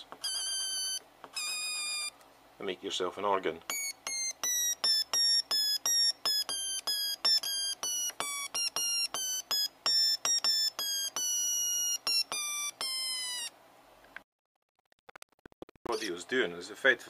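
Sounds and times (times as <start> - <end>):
short electronic beeps: 15.6 - 16.1.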